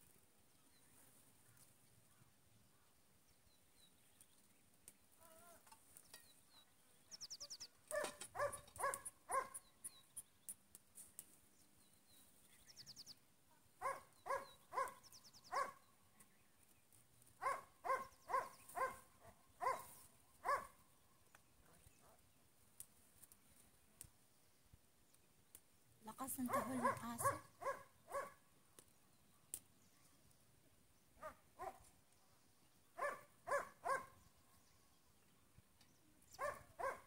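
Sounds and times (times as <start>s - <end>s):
dog barking loudly: 7.9s - 9.6s, 13.8s - 15.8s, 17.4s - 20.7s, 26.5s - 28.4s, 33.0s - 34.1s, 36.4s - 37.0s.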